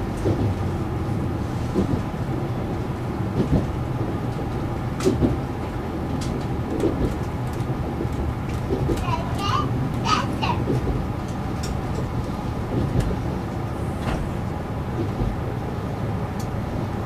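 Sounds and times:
diesel engine rumble: 0.0 - 17.0
train wheels on rails: 0.0 - 17.0.

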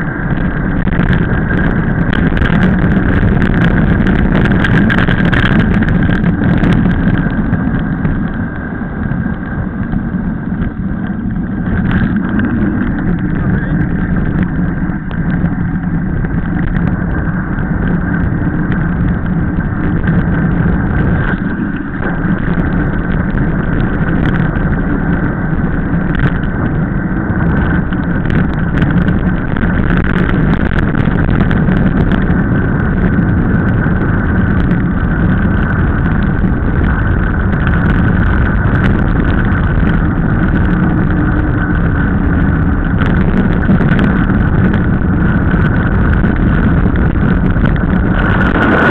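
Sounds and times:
tyre noise on rough asphalt: 0.0 - 48.9
wind on microphone: 0.0 - 48.9
small rattles and clicks: 0.1 - 48.9.

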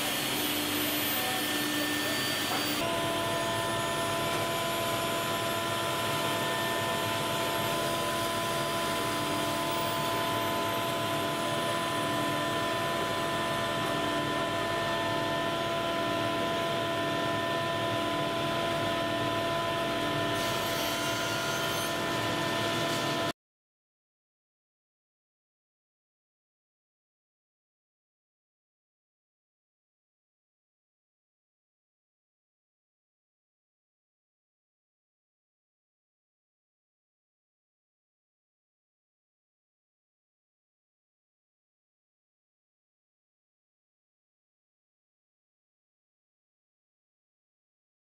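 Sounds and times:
electric motor whine: 0.0 - 23.3.

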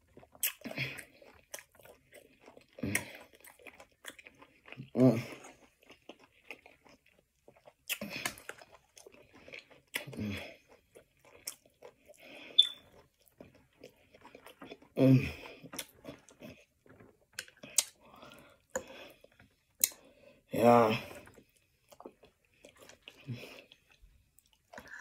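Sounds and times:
person chewing crunchy lettuce: 0.0 - 25.0
wet mouth clicks: 0.4 - 0.8, 12.5 - 12.8.

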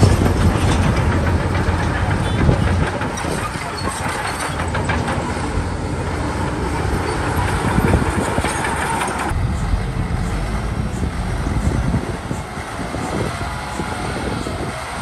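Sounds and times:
bulldozer diesel engine: 0.0 - 15.0
steel tracks clanking: 0.0 - 15.0.

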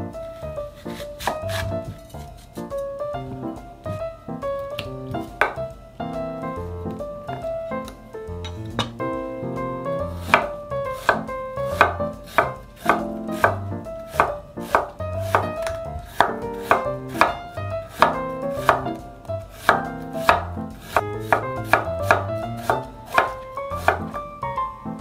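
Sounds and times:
knife cutting crisp pear: 0.9 - 2.3, 10.2 - 18.8, 19.5 - 24.1
knife knocking on wooden board: 4.8 - 5.7, 8.4 - 9.0, 10.3 - 17.4, 18.0 - 18.9, 19.6 - 24.2.

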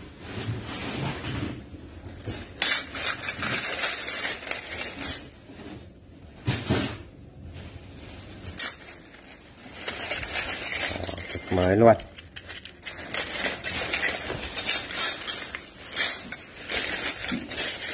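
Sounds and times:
plastic bag crinkling: 2.0 - 6.0, 7.9 - 17.9
metal cutlery clattering: 2.6 - 5.3, 8.6 - 17.9.

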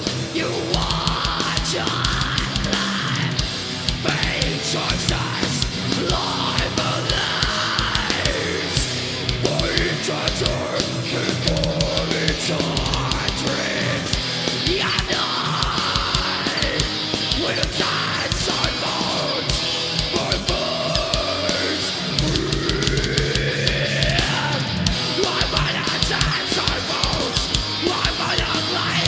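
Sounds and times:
distorted electric guitars: 0.0 - 29.0
driving drums: 0.0 - 29.0.

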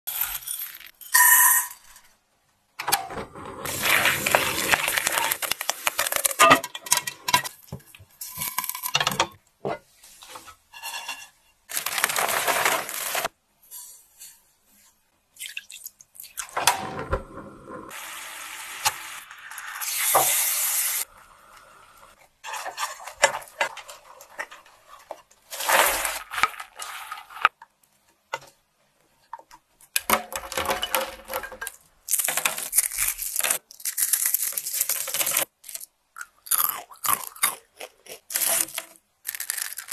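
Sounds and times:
popcorn rustling: 3.7 - 7.1, 11.7 - 13.3, 22.4 - 27.6, 30.1 - 35.9, 36.5 - 39.9
spatula scraping pan: 10.3 - 11.4
sizzling bubbling mixture: 17.0 - 22.9.

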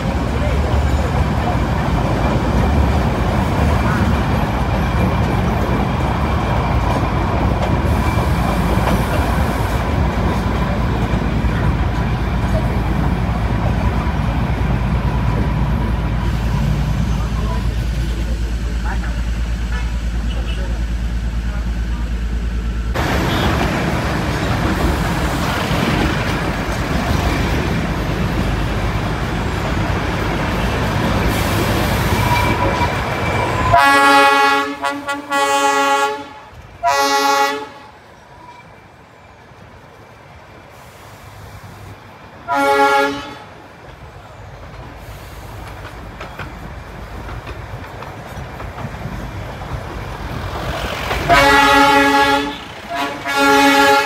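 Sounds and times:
train running with steady rumble: 0.0 - 54.0
train horn blasts: 33.7 - 38.0, 42.5 - 43.5, 51.2 - 54.0.

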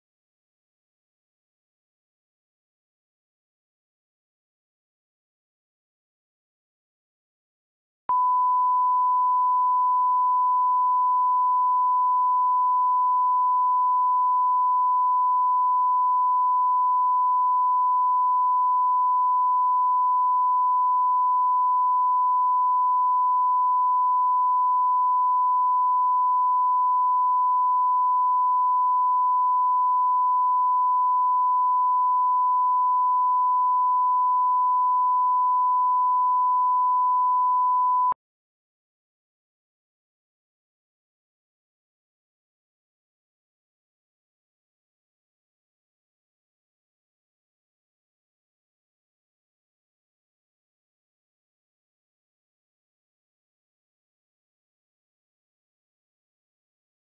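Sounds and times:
steady test tone beep: 8.1 - 38.2.

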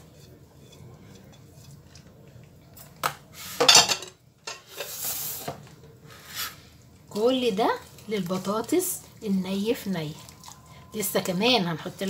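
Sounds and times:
spatula scraping metal pan: 0.0 - 1.9.

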